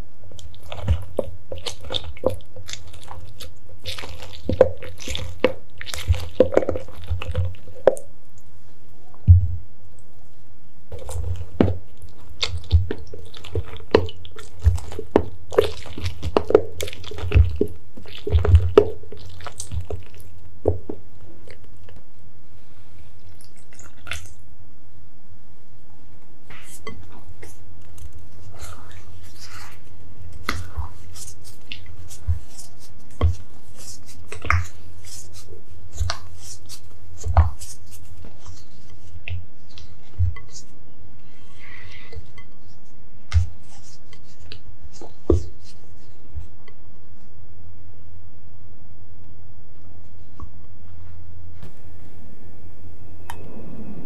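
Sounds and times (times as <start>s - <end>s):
spatula scraping batter: 26.5s - 46.5s
low hum: 47.4s - 54.0s.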